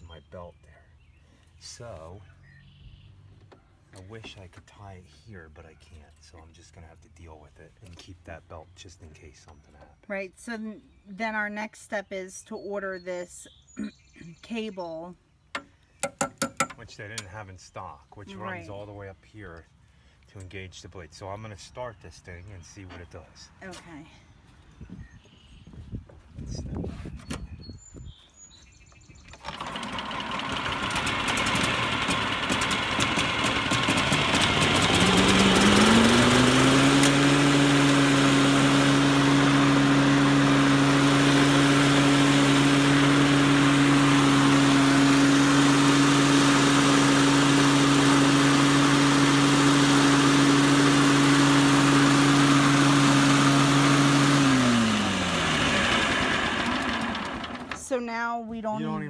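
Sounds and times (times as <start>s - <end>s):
lawn mower engine running: 29.3s - 57.8s.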